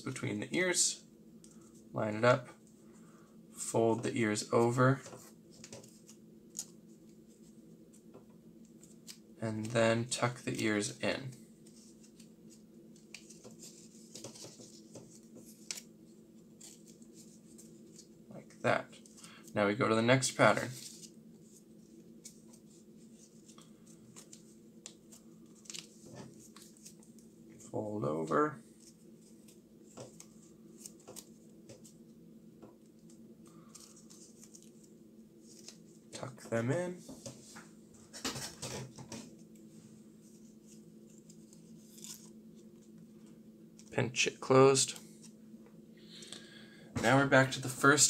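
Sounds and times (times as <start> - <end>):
faint steady hum: 0.0 - 48.0
paper rustling and crinkling: 10.5 - 15.9, 33.6 - 36.0.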